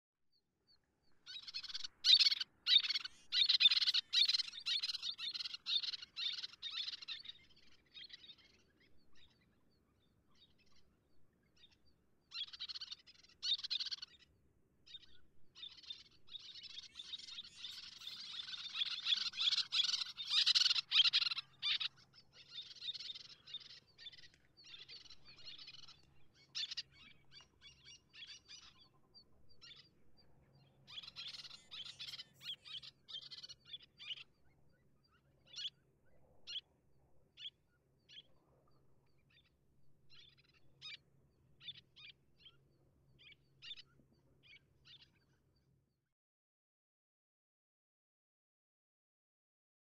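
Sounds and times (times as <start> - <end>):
terns calling: 1.2 - 9.5, 11.6 - 14.3, 14.9 - 30.0, 30.6 - 35.9.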